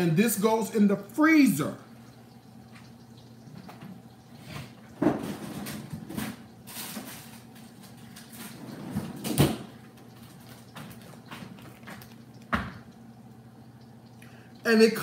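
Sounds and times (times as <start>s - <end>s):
freezer door opening and shutting: 5.0s - 7.4s, 8.2s - 9.8s
knocks and thumps: 10.8s - 12.9s.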